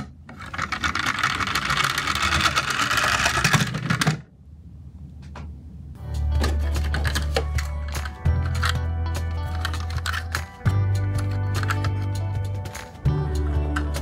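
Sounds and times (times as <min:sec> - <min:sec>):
toy motor whirring: 0:00.4 - 0:04.0
background music: 0:06.0 - 0:14.0.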